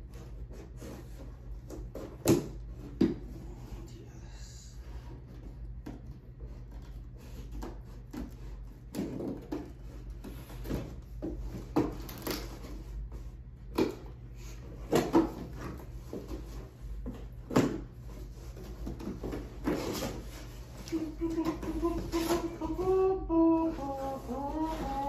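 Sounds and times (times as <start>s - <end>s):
cardboard scraping and rustling: 14.6s - 25.0s.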